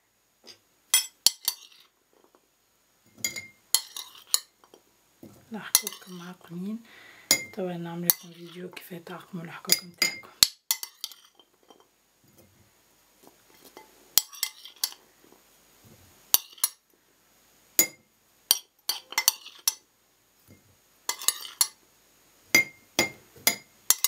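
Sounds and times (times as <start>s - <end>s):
metal utensil clinking on glass: 1.0s - 1.9s, 3.2s - 4.8s, 5.7s - 6.3s, 9.7s - 11.9s, 13.6s - 15.0s, 17.8s - 19.8s, 21.1s - 21.8s, 22.6s - 24.0s.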